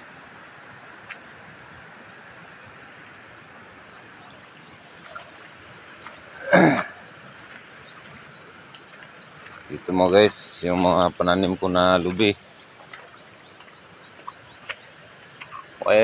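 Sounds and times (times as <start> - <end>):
outdoor background hiss: 0.0 - 16.0
bird chirps: 4.0 - 16.0.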